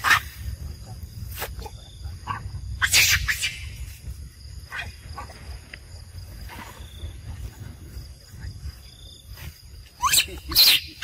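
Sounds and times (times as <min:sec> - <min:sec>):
steady low rumble: 0:00.3 - 0:02.8, 0:03.6 - 0:09.9
faint short macaque calls: 0:02.2 - 0:03.8, 0:10.0 - 0:11.0.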